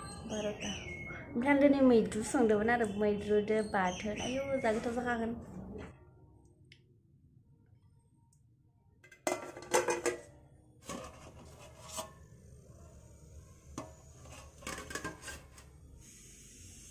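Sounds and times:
metal lid clattering and scraping: 9.1 - 12.4, 13.8 - 15.8.

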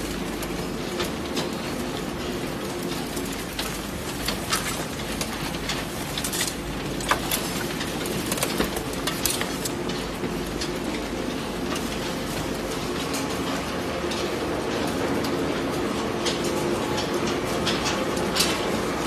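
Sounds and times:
conveyor machinery humming: 0.0 - 19.0.

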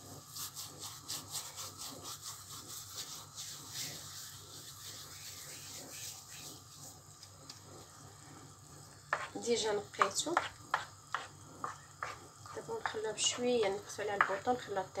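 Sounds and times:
dry herbs rubbed between palms: 0.0 - 7.8.

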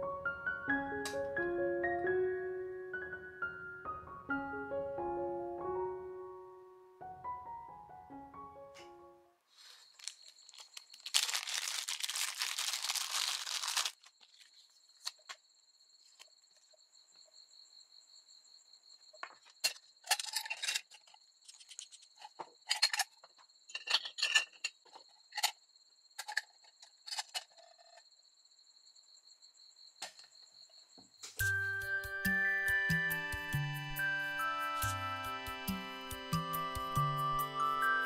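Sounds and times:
plastic bag rustling: 9.5 - 14.8.

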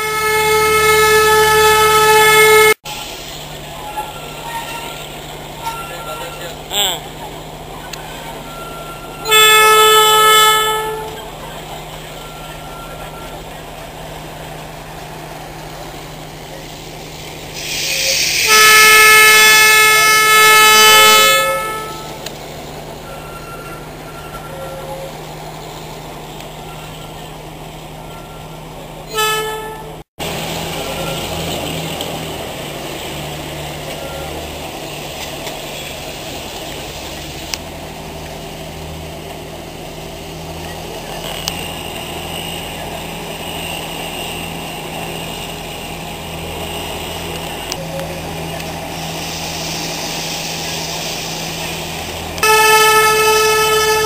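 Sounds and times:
train whistle blasts: 0.0 - 2.8, 8.4 - 11.3, 17.7 - 22.2, 52.4 - 54.0
moving train running noise: 0.0 - 54.0.

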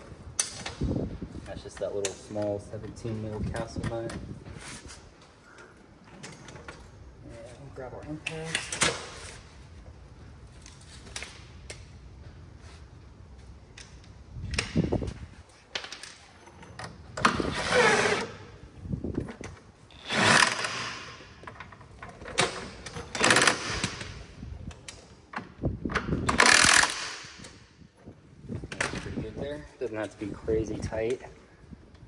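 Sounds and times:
impact wrench hammering: 26.3 - 27.5.

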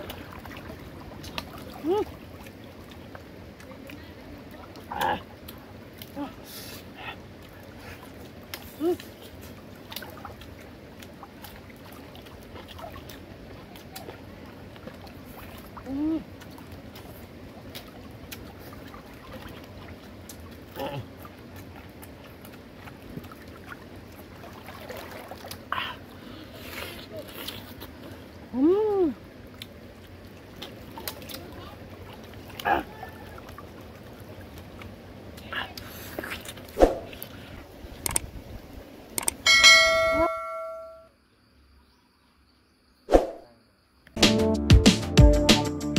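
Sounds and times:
faint outdoor background noise: 0.0 - 44.2
sharp clicks: 38.0 - 38.3, 39.2 - 39.4
notification bell chime: 39.5 - 41.0.

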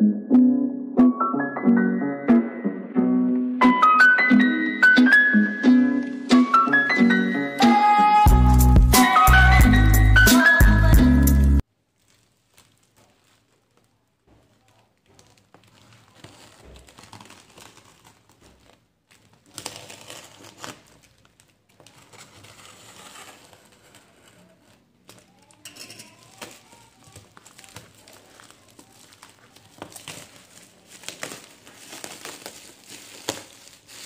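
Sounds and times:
plastic wrapping crinkling: 5.9 - 10.3, 11.6 - 34.0.

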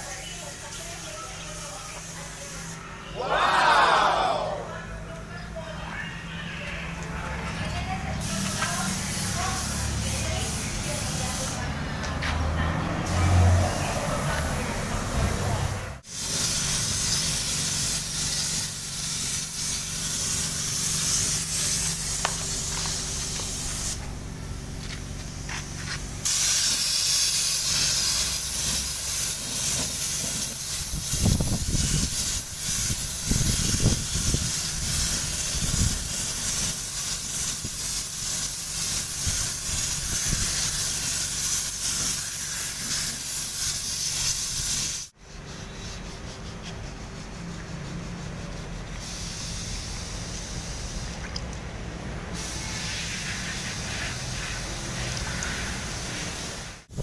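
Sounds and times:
spray gun hissing: 7.9 - 11.8, 13.1 - 45.2, 48.8 - 51.2, 52.3 - 57.0.

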